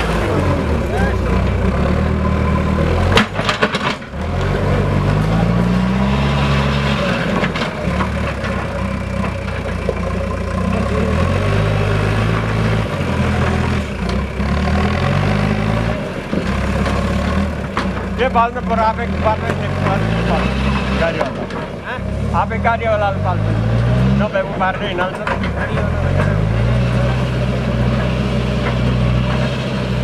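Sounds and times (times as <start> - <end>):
backhoe diesel engine revving: 0.0 - 30.0
sharp clatter of knocks: 3.0 - 4.5, 25.0 - 26.5.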